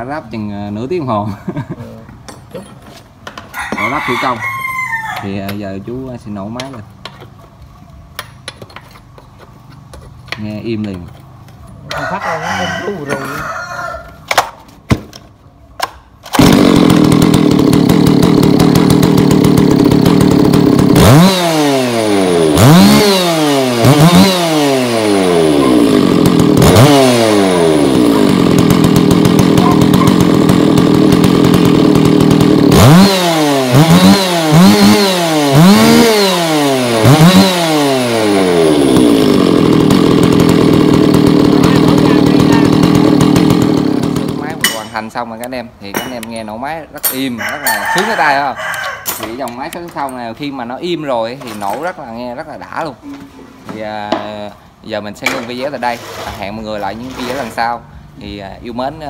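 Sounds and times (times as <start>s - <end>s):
chainsaw engine idling and revving: 9.6s - 13.4s, 16.2s - 52.9s, 54.1s - 59.0s
chainsaw starter pulls: 16.2s - 53.1s, 55.3s - 58.2s.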